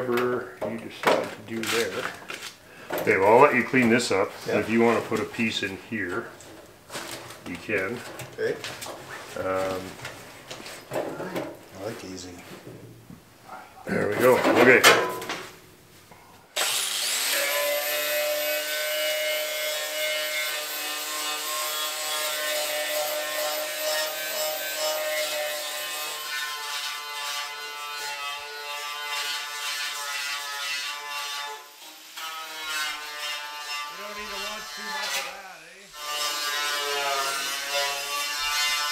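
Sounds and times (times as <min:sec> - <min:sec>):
angle grinder grinding steel: 0:16.6 - 0:38.9.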